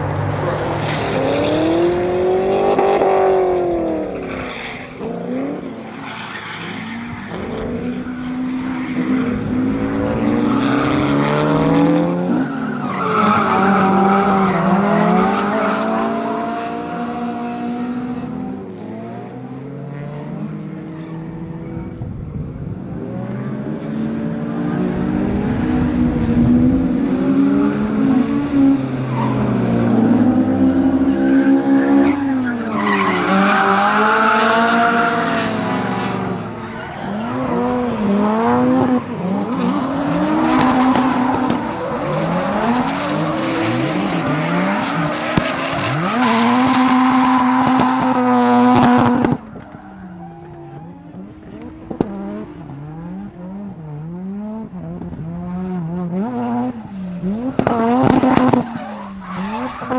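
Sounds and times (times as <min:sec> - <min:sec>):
car engine revving: 0:23.2 - 0:59.9.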